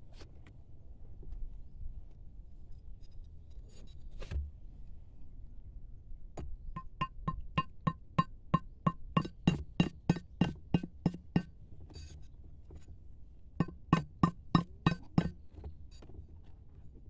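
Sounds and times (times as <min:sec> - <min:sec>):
metal blade striking metal pipe: 0:06.8 - 0:11.5, 0:13.6 - 0:15.4.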